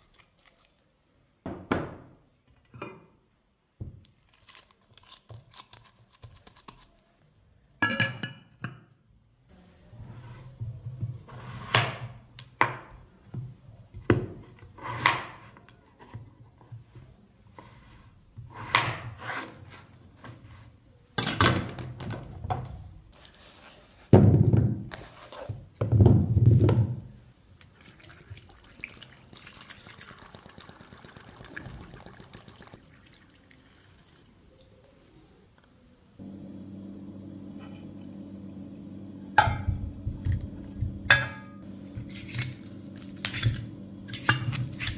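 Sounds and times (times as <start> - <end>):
water pouring: 27.6 - 34.8
steady low hum: 36.2 - 44.8.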